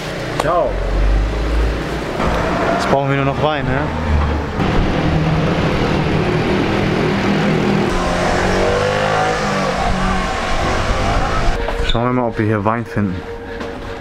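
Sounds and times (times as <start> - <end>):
small car engine: 2.2 - 11.8
motor scooter engine: 4.6 - 11.6.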